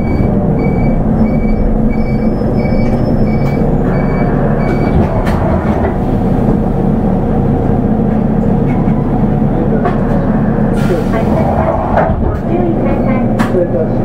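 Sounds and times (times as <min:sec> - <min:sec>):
high electronic beeps: 0:00.0 - 0:05.0
bus diesel engine droning: 0:00.0 - 0:14.0.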